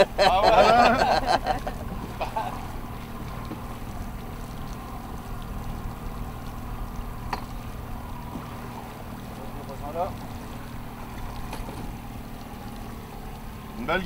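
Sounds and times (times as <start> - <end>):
boat motor humming: 0.0 - 14.0.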